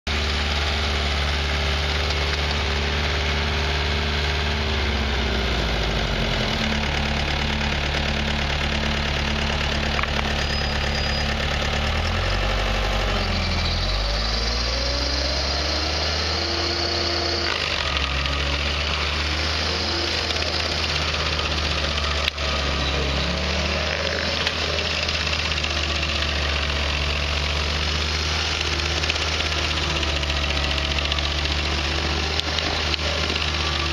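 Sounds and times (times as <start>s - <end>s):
stump grinder engine running: 0.1s - 33.9s
cutter wheel chewing stump: 4.8s - 33.9s.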